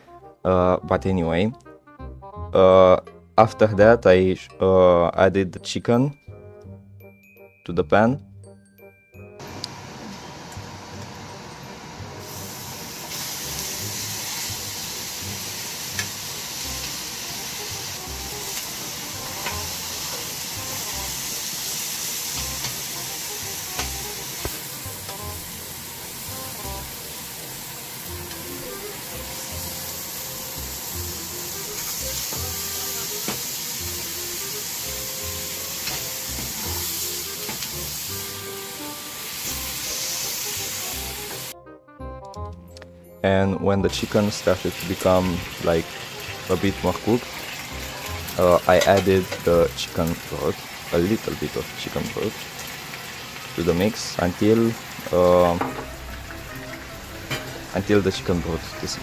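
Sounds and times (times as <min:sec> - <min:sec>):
food sizzling in a pan: 0:09.4 - 0:41.6, 0:44.0 - 0:59.0.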